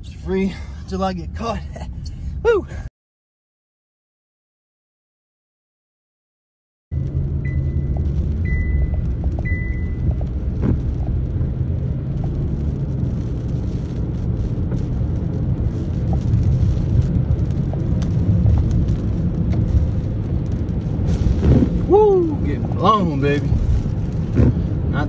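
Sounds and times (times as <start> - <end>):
car driving on wet road: 0.0 - 2.8, 6.9 - 25.0
storm rain and wind: 6.9 - 25.0
car warning chime beeps: 7.4 - 10.2.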